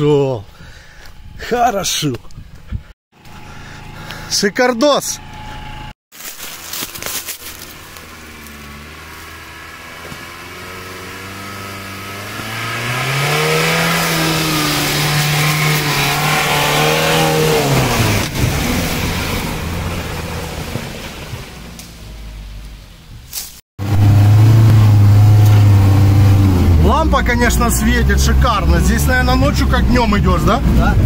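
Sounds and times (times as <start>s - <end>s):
off-road vehicle engine revving: 6.7s - 22.5s, 23.8s - 31.0s.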